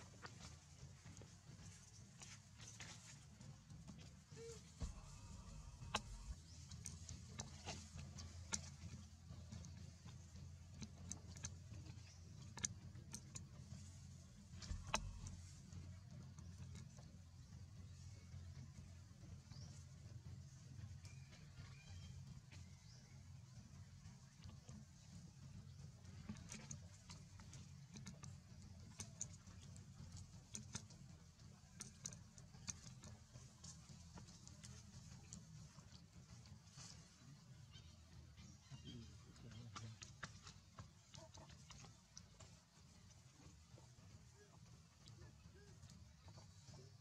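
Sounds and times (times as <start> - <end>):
faint low hum: 0.0 - 47.0
faint ticks and clicks: 0.0 - 47.0
low rumble: 4.6 - 7.2.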